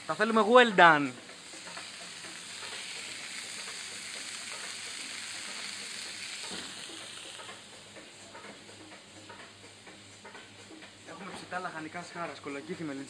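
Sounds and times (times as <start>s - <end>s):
meat sizzling in hot oil: 0.0s - 8.4s.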